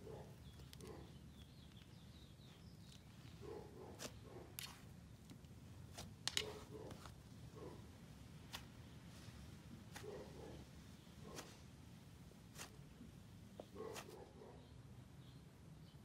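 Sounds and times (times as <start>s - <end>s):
slime squishing and crackling: 4.0s - 7.2s.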